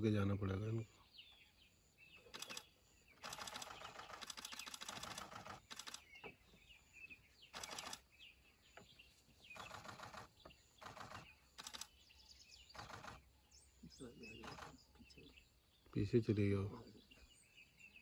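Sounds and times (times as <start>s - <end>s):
camera shutters clicking: 2.4s - 6.1s, 7.6s - 8.0s, 9.6s - 11.9s.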